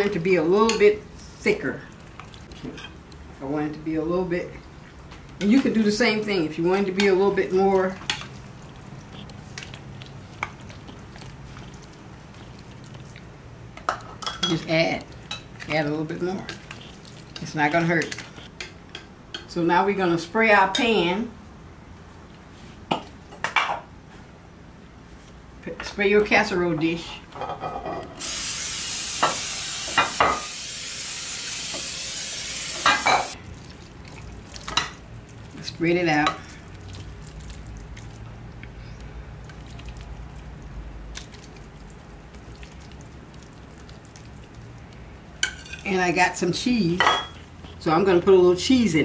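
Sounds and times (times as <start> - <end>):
spoon stirring thick mixture: 0.0 - 19.6, 33.4 - 48.7
aerosol spray hissing: 28.2 - 33.0.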